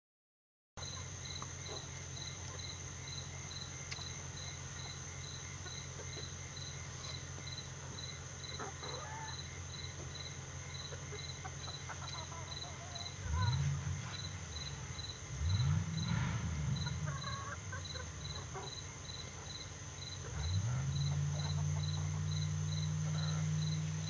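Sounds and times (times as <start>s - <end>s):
insects chirping: 0.8s - 24.0s
low rumble: 13.2s - 18.4s.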